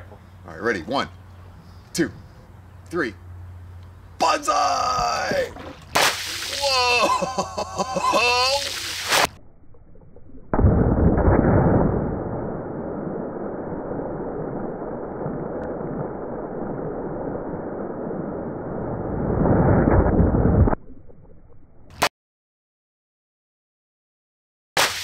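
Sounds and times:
water balloon bursting: 5.6s - 7.2s, 8.4s - 9.4s, 24.8s - 25.0s.

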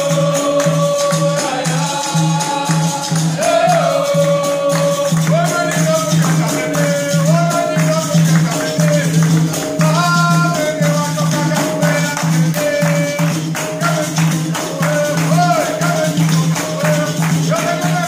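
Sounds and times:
berimbaus playing: 0.0s - 18.0s
group singing: 0.0s - 18.0s
pandeiro rhythm: 0.0s - 18.0s
people clapping: 0.0s - 18.0s.

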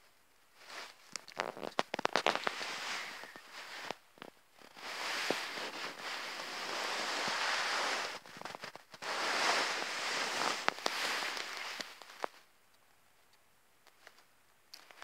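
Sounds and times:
rustling against microphone: 0.6s - 12.5s.

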